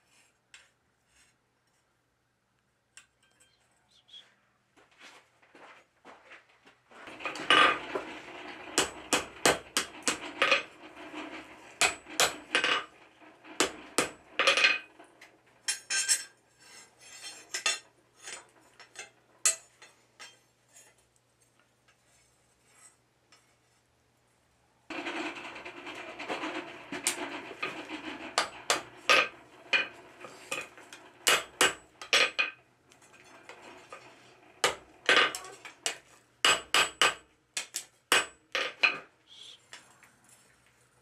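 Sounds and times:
sharp metallic knocks: 0:07.2 - 0:10.7, 0:13.5 - 0:14.9, 0:31.2 - 0:32.5, 0:34.6 - 0:39.0.

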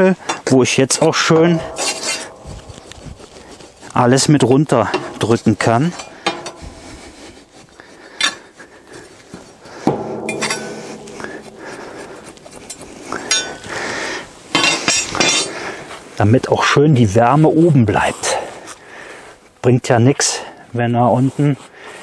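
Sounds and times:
insulation rustling and scraping: 0:00.0 - 0:18.8, 0:20.8 - 0:21.8
sharp knocks: 0:01.2 - 0:03.2, 0:09.8 - 0:13.6.

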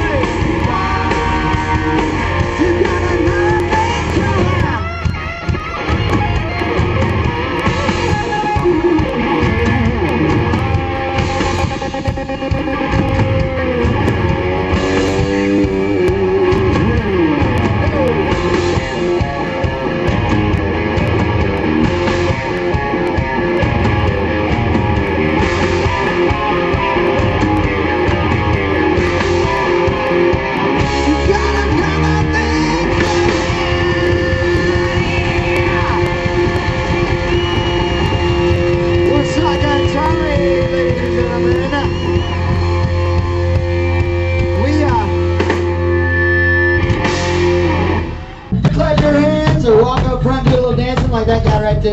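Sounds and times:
drum kit: 0:00.0 - 0:51.9
electric guitars: 0:00.0 - 0:51.9.

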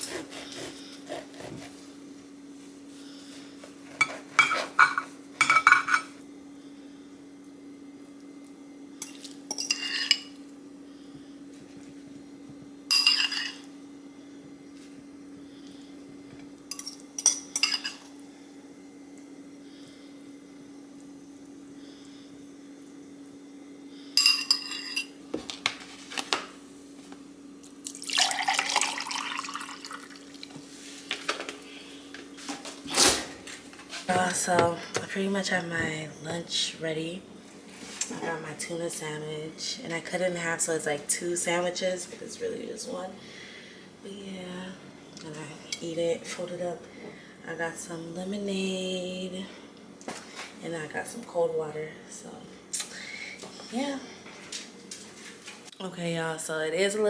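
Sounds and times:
steady low hum: 0:00.0 - 0:57.0
fork scraping ceramic bowl: 0:09.5 - 0:10.3
liquid pouring into a glass: 0:27.8 - 0:30.5.

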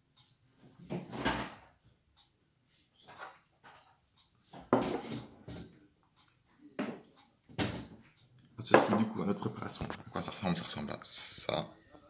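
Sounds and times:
kitchen items clattering: 0:04.6 - 0:05.7.

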